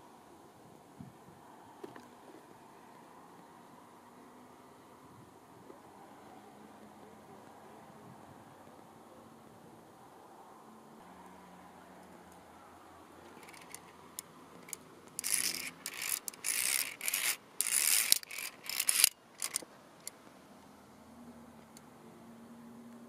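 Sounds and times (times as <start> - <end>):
carabiner scraping along steel cable: 13.2 - 20.2
metallic clicks: 13.4 - 20.2.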